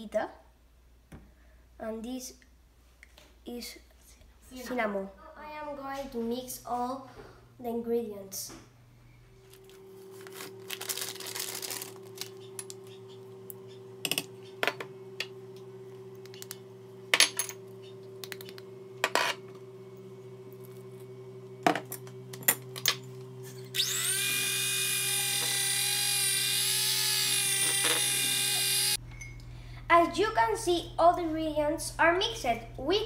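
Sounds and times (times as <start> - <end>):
electric hand mixer whining: 23.5 - 29.0.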